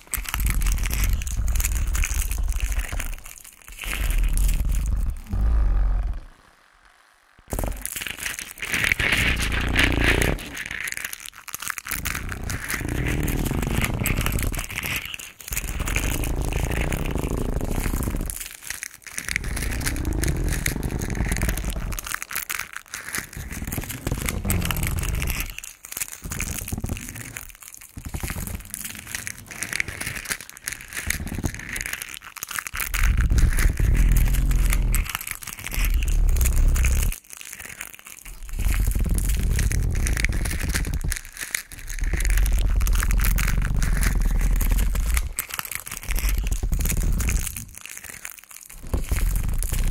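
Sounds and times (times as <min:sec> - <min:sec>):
bell pepper skin crinkling: 0:00.0 - 0:05.5, 0:07.5 - 0:49.9
heavy low rumble: 0:00.2 - 0:03.1, 0:32.8 - 0:37.2.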